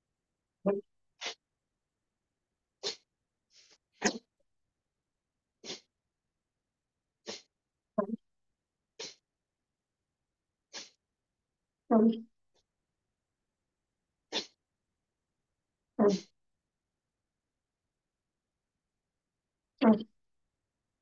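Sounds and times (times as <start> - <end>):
forceful nasal exhalations: 2.8 - 4.3, 5.6 - 5.9, 7.2 - 7.5, 9.0 - 9.2, 10.7 - 11.0, 14.3 - 14.6, 16.0 - 16.3.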